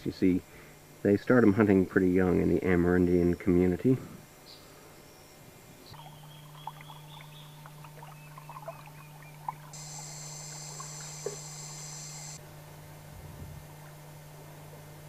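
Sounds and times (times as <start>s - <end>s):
faint water sounds: 5.9s - 12.4s
short chirps and calls: 5.9s - 12.4s
steady low hum: 9.6s - 13.2s
high even insect buzz: 9.7s - 12.4s.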